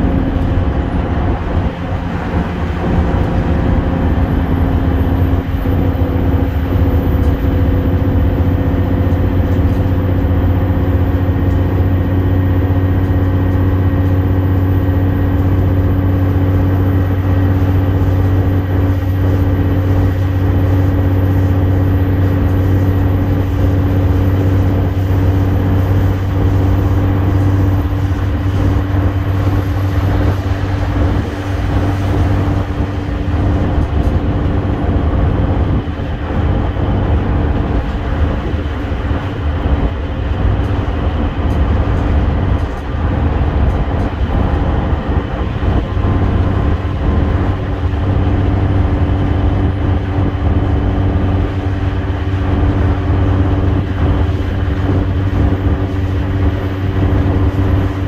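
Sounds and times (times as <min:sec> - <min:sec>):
bus diesel engine drone: 0:00.0 - 0:58.0
tyre and road noise: 0:00.0 - 0:58.0.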